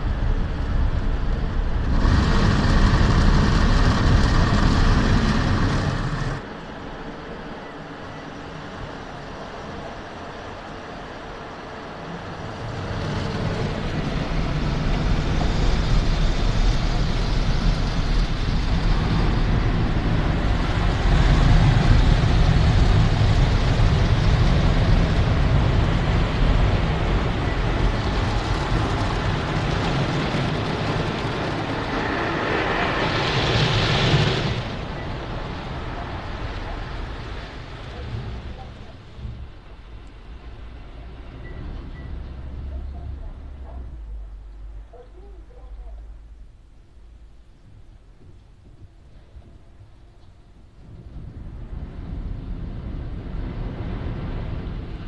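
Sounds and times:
car wash brushes rumbling: 0.0 - 6.6, 9.4 - 44.8
hissing: 1.3 - 6.4.

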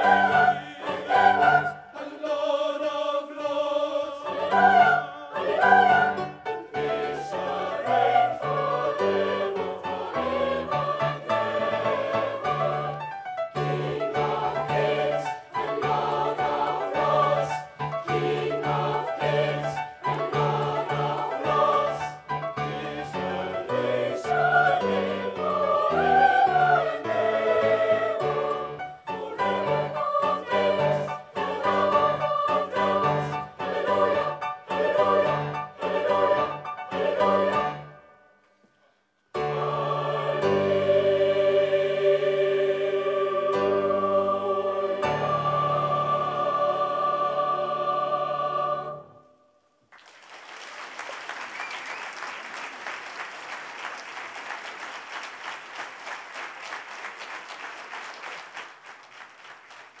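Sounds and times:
choir singing unaccompanied: 0.0 - 38.1, 39.4 - 49.4
audience applauding: 49.9 - 60.0.

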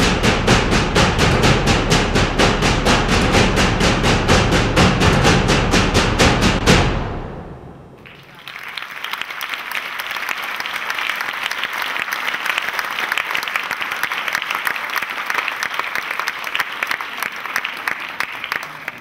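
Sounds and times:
audience applauding: 8.0 - 19.0.

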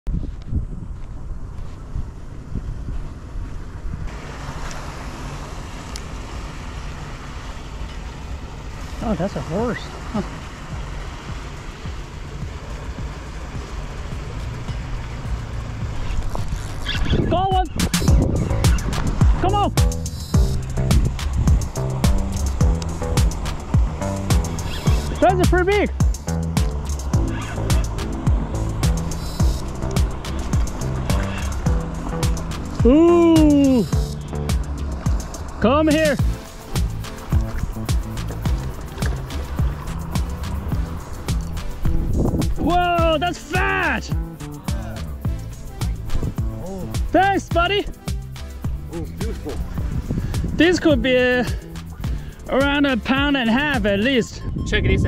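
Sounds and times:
wind buffeting microphone: 0.1 - 4.2, 10.7 - 25.2, 25.9 - 42.8, 45.1 - 52.5, 54.3 - 55.0
wide hiss: 4.0 - 14.7, 17.8 - 53.4
kick drum beat: 10.7 - 16.0, 17.5 - 35.3, 36.2 - 52.3
hi-hat ticks: 17.8 - 54.1.

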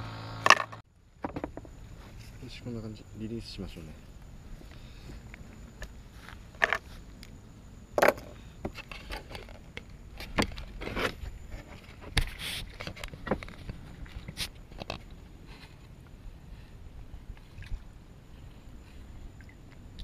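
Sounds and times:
handling rustling and scraping: 4.6 - 7.2, 8.0 - 16.0.

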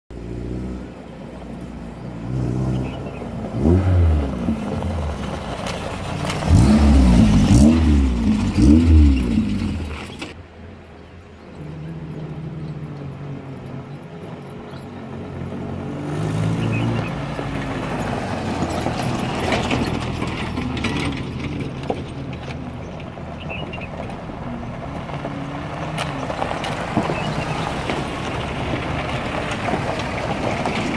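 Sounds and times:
off-road vehicles driving past: 0.1 - 30.9
engine revving hard: 2.3 - 4.6, 6.4 - 10.1.

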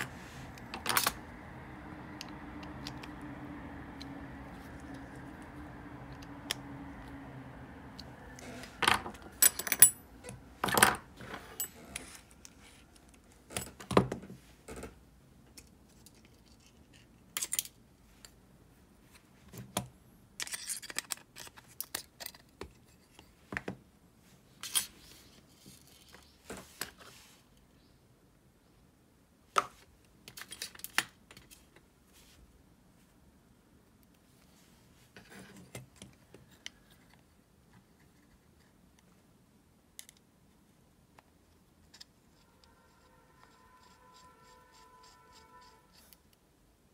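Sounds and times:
small metal parts clicking: 15.6 - 17.8, 20.4 - 22.5.

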